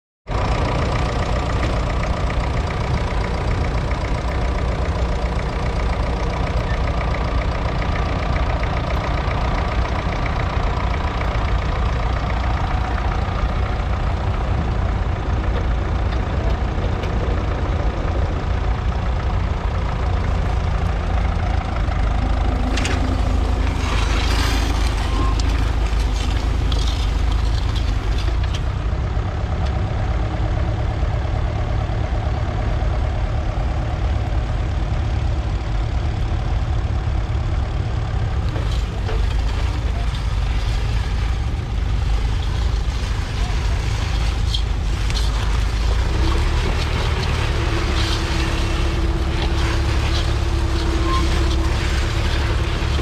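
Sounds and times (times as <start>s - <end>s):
tractor diesel engine under load: 0.2s - 53.0s.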